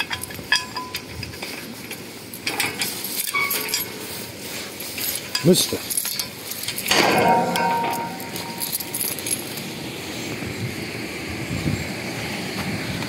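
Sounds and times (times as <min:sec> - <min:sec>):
distant traffic rumble: 0:03.8 - 0:13.0.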